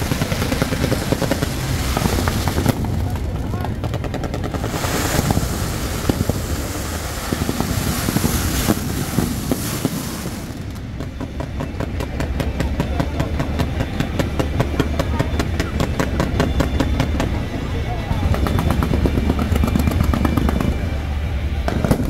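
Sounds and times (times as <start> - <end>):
fireworks crackling hiss: 0.0 - 3.3, 4.4 - 11.2
firecracker string popping: 0.0 - 17.4, 21.6 - 22.0.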